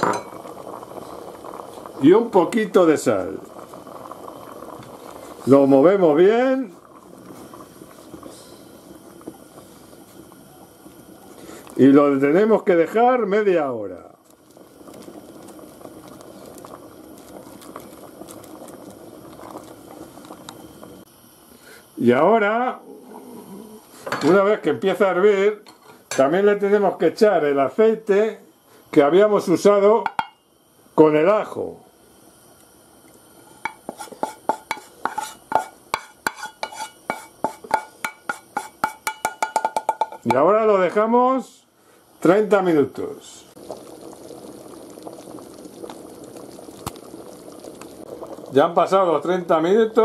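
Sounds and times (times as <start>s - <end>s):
stew sloshing and bubbling: 0.3s - 12.7s, 14.0s - 21.1s, 43.5s - 50.0s
wooden spoon scraping metal pan: 33.7s - 39.1s.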